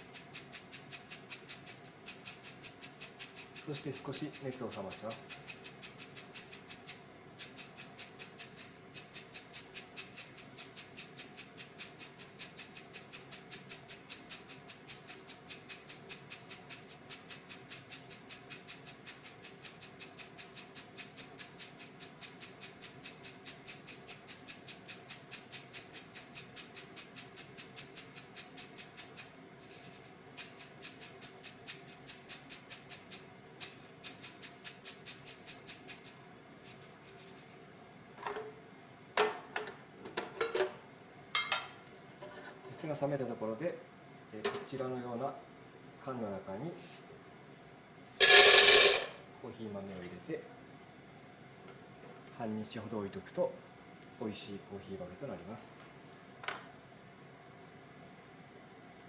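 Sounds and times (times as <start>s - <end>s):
coffee beans rattling in a strainer: 0.0s - 37.5s, 48.2s - 49.2s.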